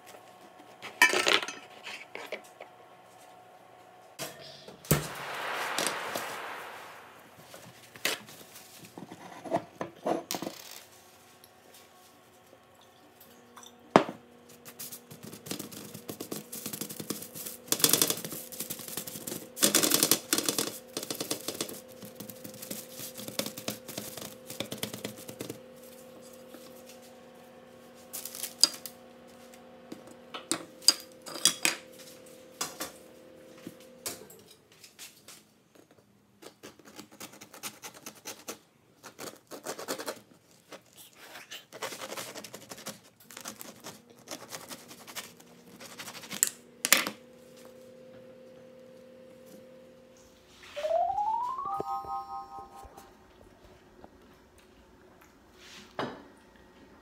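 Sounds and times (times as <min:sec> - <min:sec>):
steady low hum: 0:02.7 - 0:08.6.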